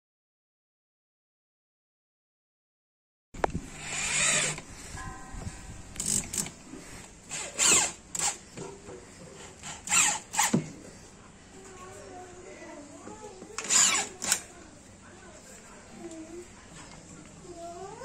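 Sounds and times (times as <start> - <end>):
electric drill whirring: 3.7 - 4.6, 6.0 - 6.5, 7.3 - 8.4, 9.6 - 10.6, 13.6 - 14.4.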